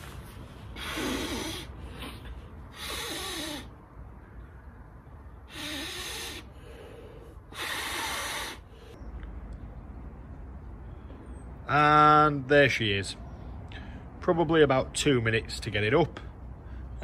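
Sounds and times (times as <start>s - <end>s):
man blowing into air mat valve: 0.7s - 3.7s, 5.5s - 6.9s, 7.5s - 8.8s.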